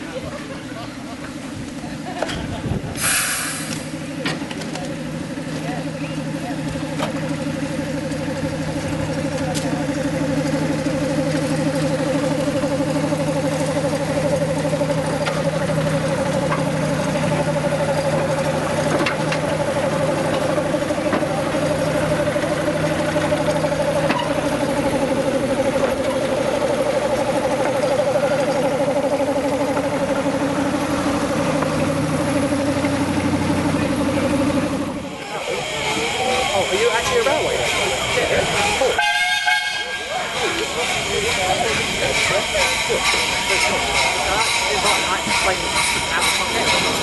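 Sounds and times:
steady engine-like running: 0.0s - 47.0s.

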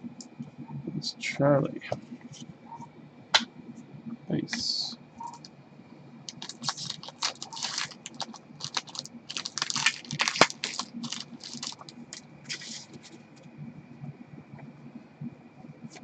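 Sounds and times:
cards ticking and swishing: 6.3s - 13.4s.

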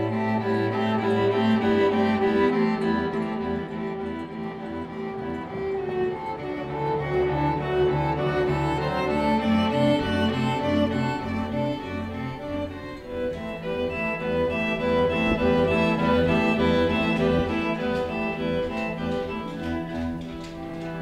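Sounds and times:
cello playing slow notes: 0.0s - 21.0s
violin playing slow notes: 0.0s - 21.0s.

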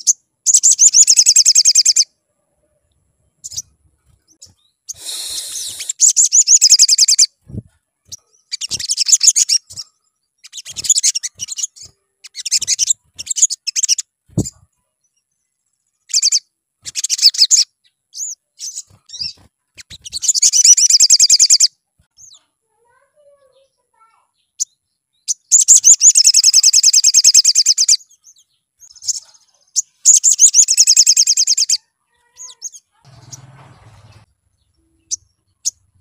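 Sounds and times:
bird high trilling song: 0.0s - 2.2s, 3.2s - 23.0s, 23.6s - 36.0s
soft low thuds: 14.3s - 14.6s.

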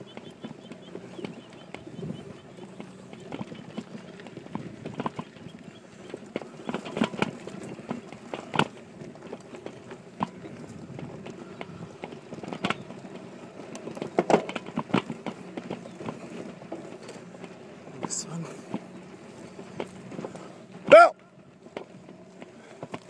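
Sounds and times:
bike rumbling over bumpy grass: 0.0s - 23.0s
knocks and rattles from bike mount: 6.3s - 10.4s, 13.8s - 17.2s.

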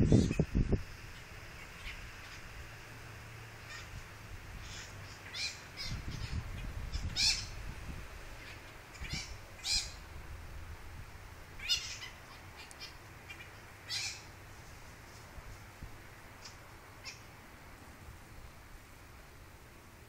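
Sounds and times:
parrots squawking: 1.2s - 2.5s, 3.6s - 4.0s, 4.6s - 7.6s, 8.4s - 10.0s, 11.6s - 14.3s, 16.4s - 17.3s.

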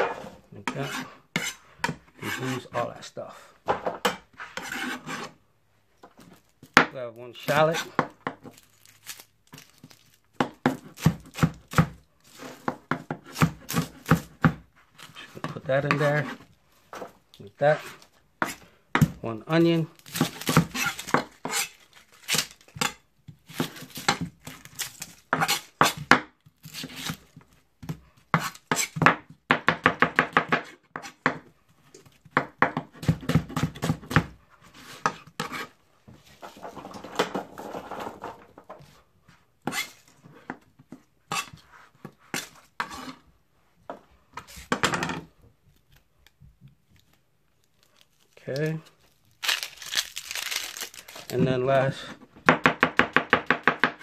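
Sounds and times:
knife chopping on cutting board: 12.6s - 14.6s, 32.3s - 34.4s.

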